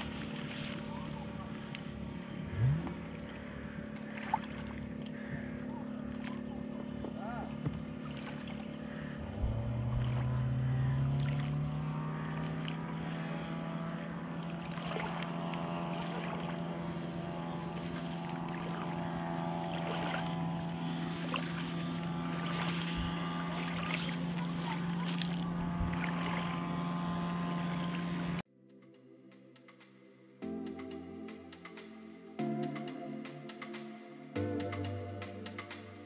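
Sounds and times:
motor droning: 0.0s - 28.5s.

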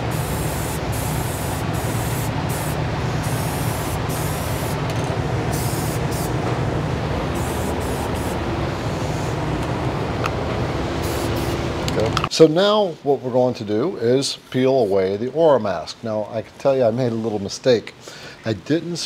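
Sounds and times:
spray paint can hissing: 0.0s - 4.8s, 5.5s - 6.3s, 7.4s - 8.4s, 11.0s - 11.6s.

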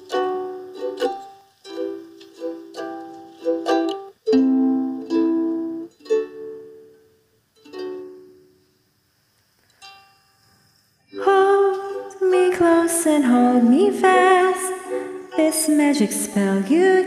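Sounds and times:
acoustic plucked string chords: 0.0s - 8.8s, 11.1s - 17.0s
woman singing: 11.1s - 17.0s.

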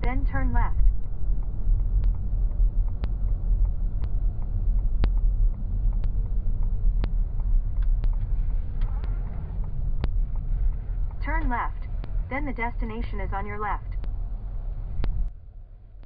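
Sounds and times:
road rumble inside car: 0.0s - 16.0s
sharp light ticks: 0.9s - 12.2s, 13.9s - 14.2s.

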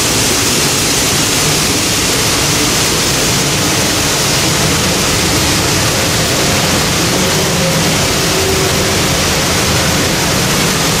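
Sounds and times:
train wheels rolling on rails: 0.0s - 11.0s.

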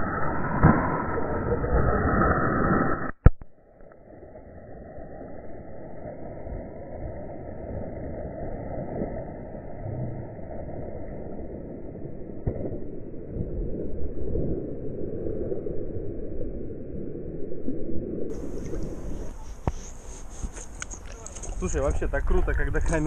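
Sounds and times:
water splashing and churning: 18.3s - 23.0s.

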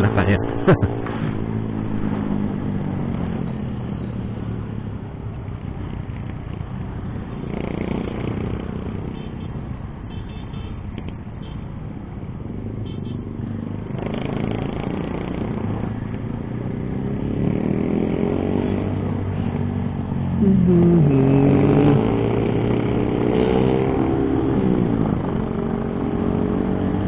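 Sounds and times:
loud pitched tone: 20.4s - 21.6s.

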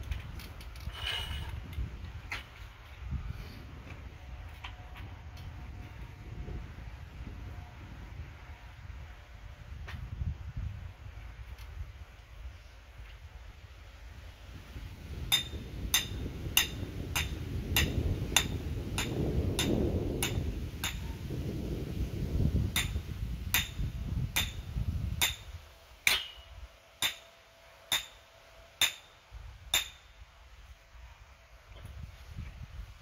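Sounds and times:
hammer striking metal stake: 15.3s - 21.1s, 22.7s - 24.6s, 25.2s - 30.1s.

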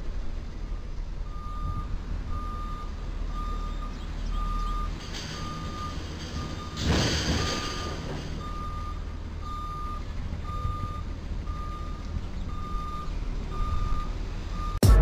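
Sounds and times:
truck engine running: 0.0s - 15.0s
reversing alarm beeping: 1.3s - 14.8s.

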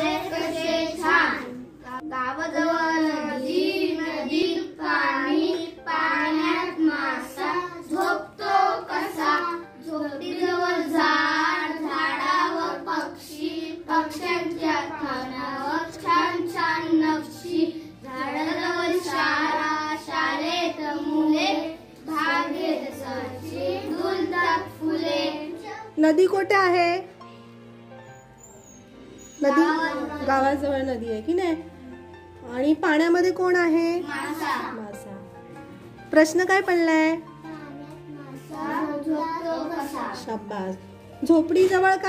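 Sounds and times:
children singing in unison: 2.6s - 25.4s.

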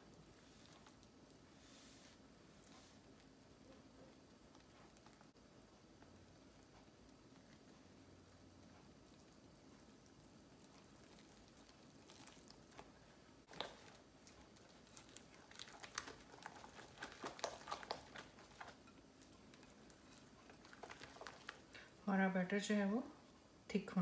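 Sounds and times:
whisk beating batter in bowl: 13.9s - 21.7s.

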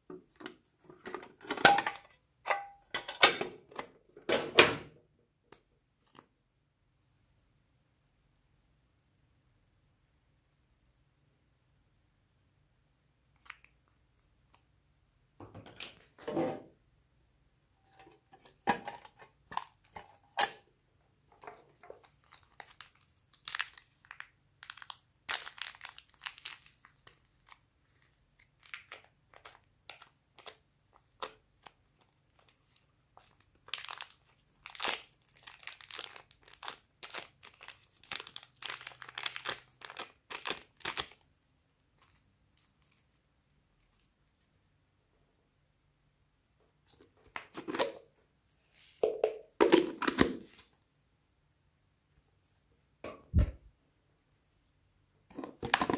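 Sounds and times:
plastic bag crinkling: 21.9s - 41.2s.

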